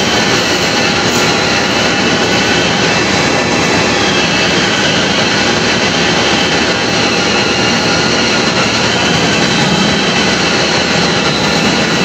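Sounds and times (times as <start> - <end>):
lathe running: 0.0 - 12.0
faint high whining tones: 1.0 - 12.0.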